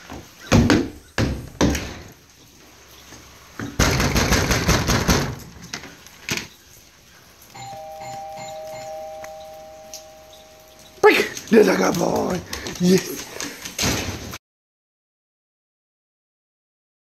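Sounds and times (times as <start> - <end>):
two-tone electronic doorbell chime: 7.6 - 11.2.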